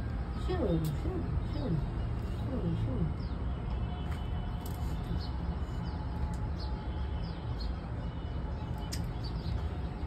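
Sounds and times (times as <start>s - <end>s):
small birds chirping: 0.1s - 10.0s.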